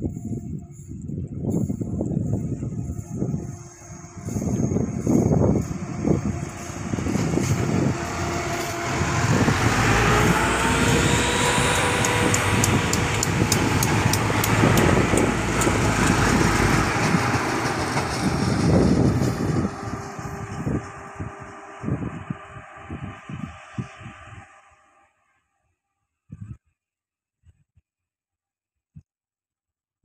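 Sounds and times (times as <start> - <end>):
diesel train engine rumble: 0.0 - 25.0
gliding whine: 0.0 - 25.5
train wheels clicking: 6.4 - 21.1.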